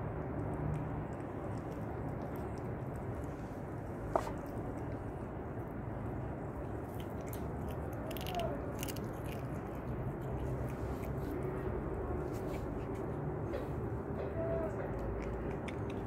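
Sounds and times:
low background hum: 0:00.0 - 0:16.0
cat crunching dry kibble: 0:00.3 - 0:05.3, 0:06.4 - 0:13.2, 0:14.9 - 0:16.0.

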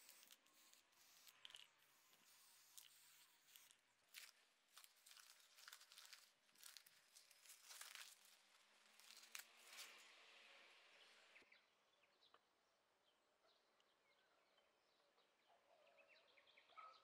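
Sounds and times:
plastic and tape crinkling: 0:00.0 - 0:10.1.

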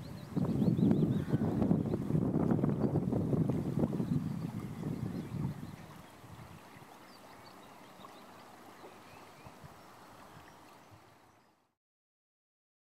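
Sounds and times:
wind buffeting microphone: 0:00.0 - 0:07.2, 0:09.1 - 0:11.2
river water rushing: 0:01.2 - 0:11.6.

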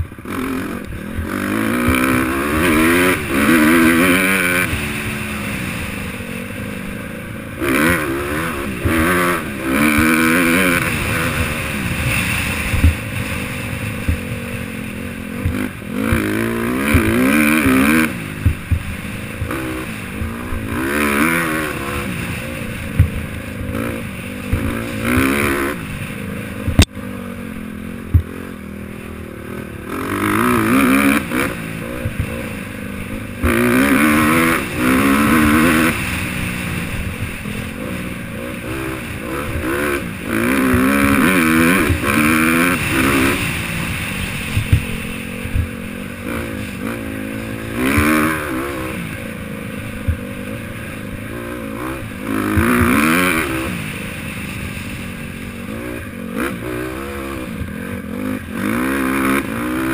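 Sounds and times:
dirt bike engine revving: 0:00.0 - 0:59.9
bike knocking over bumps: 0:18.4 - 0:19.6
sharp crack: 0:30.5 - 0:49.2.

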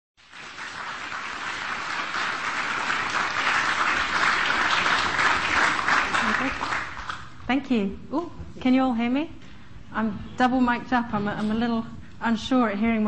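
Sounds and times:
audience applauding: 0:00.2 - 0:07.4.

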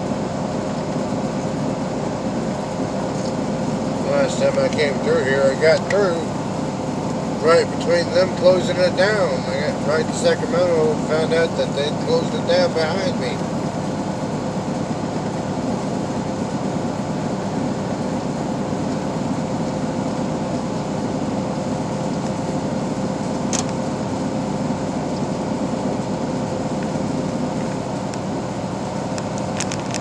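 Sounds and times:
constant hum: 0:00.0 - 0:30.0
truck engine and tyre drone: 0:00.0 - 0:30.0
brief click: 0:23.5 - 0:23.8.

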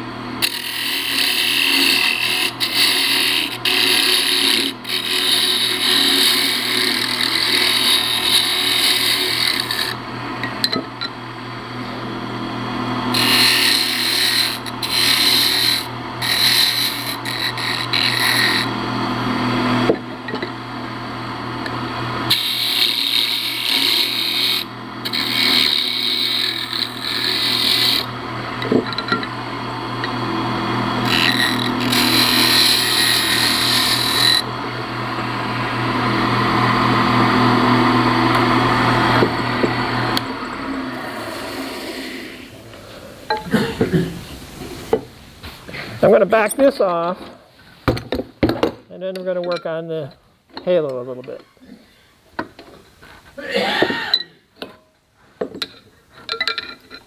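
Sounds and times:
turning tool cutting wood: 0:00.0 - 0:43.0
wood lathe humming: 0:00.0 - 0:44.0.

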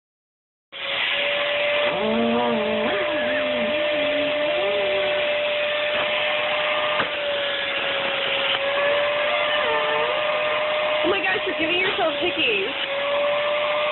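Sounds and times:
vacuum cleaner running: 0:00.8 - 0:13.9
person talking: 0:02.0 - 0:05.1, 0:11.0 - 0:12.7.

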